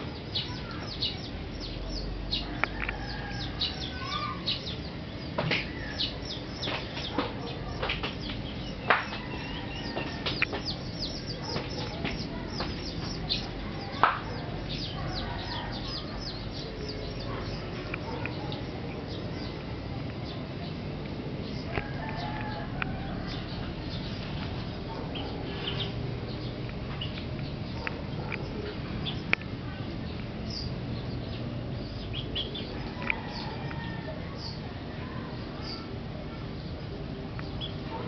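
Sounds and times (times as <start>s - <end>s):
chickens clucking: 0.0s - 26.1s
small birds chirping: 0.0s - 38.0s.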